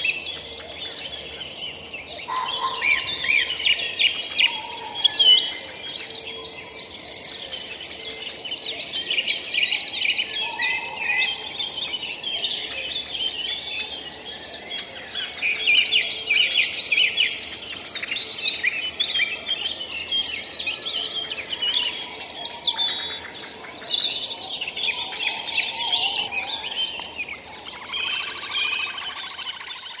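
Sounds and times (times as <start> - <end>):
many songbirds singing: 0.0 - 30.0.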